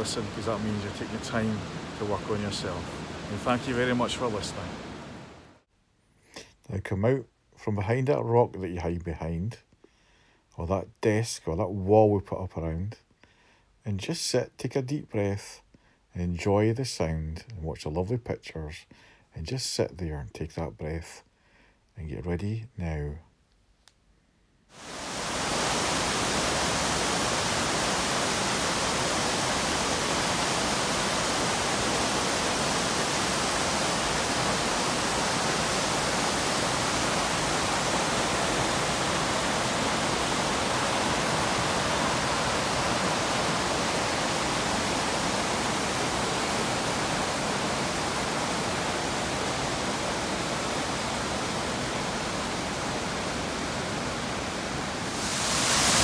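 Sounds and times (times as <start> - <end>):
waterfall rushing: 0.0 - 5.5, 24.8 - 56.0.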